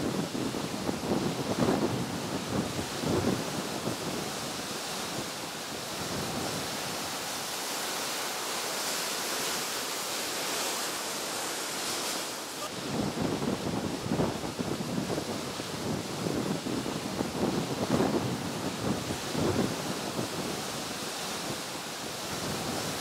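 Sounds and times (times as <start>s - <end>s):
wind buffeting microphone: 0.0s - 8.1s, 11.8s - 23.0s
surf: 0.0s - 23.0s
wind rushing: 11.0s - 23.0s.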